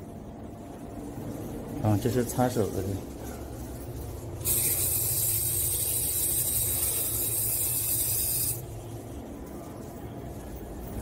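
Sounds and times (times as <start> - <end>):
faucet water spraying on hand: 4.5 - 8.6.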